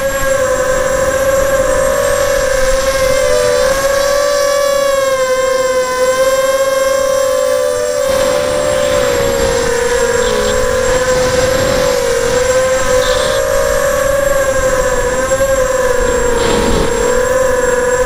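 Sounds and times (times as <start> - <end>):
drone motors whining: 0.0 - 18.0
rushing noise: 7.7 - 18.0.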